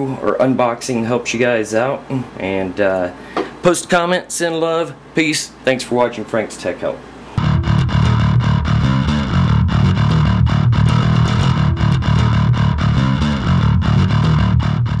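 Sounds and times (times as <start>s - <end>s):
loud music with steady beat: 7.4s - 15.0s.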